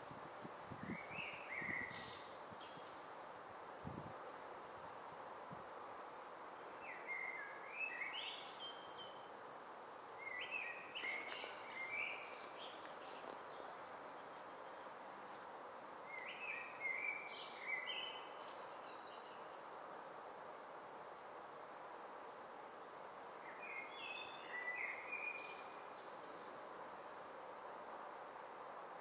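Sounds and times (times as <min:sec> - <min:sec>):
songbird singing: 0:00.7 - 0:03.3, 0:06.4 - 0:19.9, 0:23.4 - 0:27.2.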